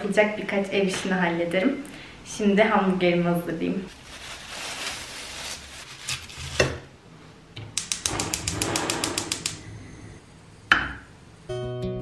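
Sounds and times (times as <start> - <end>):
plastic wrap crinkling: 3.9 - 6.8
gas hob igniter clicking: 7.8 - 9.7.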